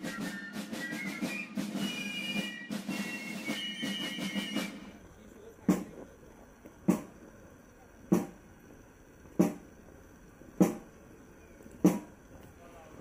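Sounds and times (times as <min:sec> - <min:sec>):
marching drum strokes: 0:00.0 - 0:05.0, 0:05.6 - 0:06.0, 0:06.8 - 0:07.2, 0:08.1 - 0:08.4, 0:10.6 - 0:11.0, 0:11.8 - 0:12.2.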